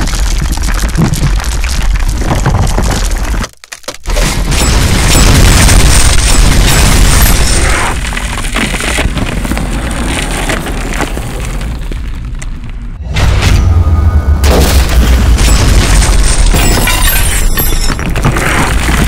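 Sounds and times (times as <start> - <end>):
low rumble of walls breaking: 0.0 - 19.0
deep boom: 13.0 - 16.9.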